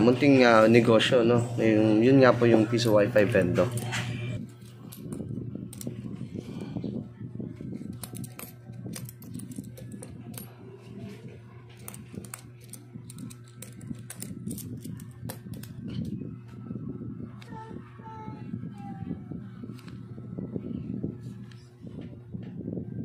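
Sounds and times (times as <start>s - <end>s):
steady low hum: 0.0s - 23.0s
coins clinking: 2.8s - 6.1s, 7.8s - 10.5s, 11.7s - 16.0s.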